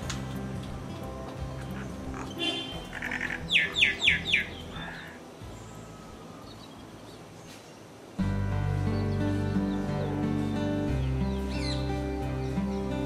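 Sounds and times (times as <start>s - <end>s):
faint background music: 0.0s - 13.0s
myna calling and whistling: 1.6s - 6.9s.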